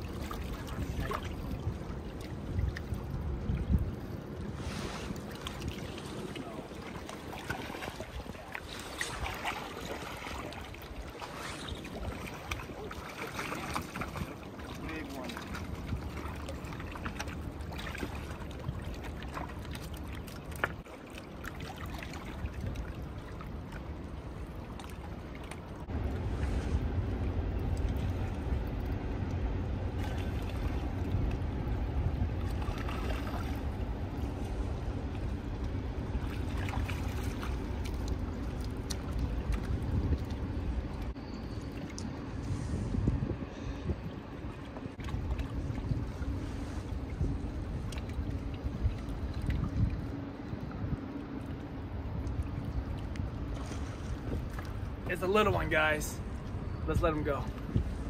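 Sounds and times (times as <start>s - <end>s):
wind buffeting microphone: 0.0s - 12.9s, 25.8s - 41.2s, 42.1s - 55.2s, 55.8s - 58.0s
river water running: 0.0s - 58.0s.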